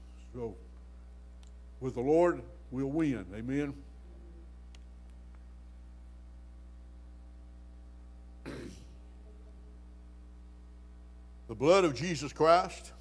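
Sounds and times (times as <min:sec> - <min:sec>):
low electrical hum: 0:00.0 - 0:13.0
man clearing his throat: 0:08.4 - 0:09.0.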